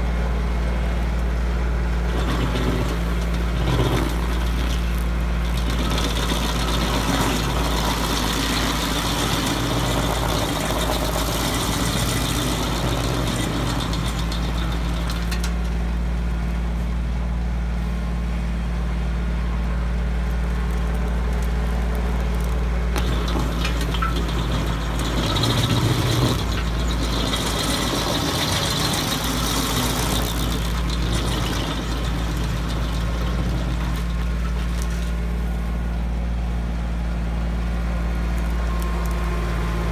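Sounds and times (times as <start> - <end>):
tractor engine drone: 0.0 - 39.9
stump grinder grinding: 0.6 - 16.5, 20.4 - 36.0.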